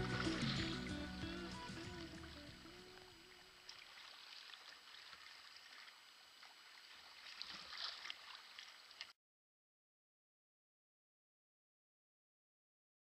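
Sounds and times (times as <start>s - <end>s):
water splashing and fizzing: 0.0s - 9.2s.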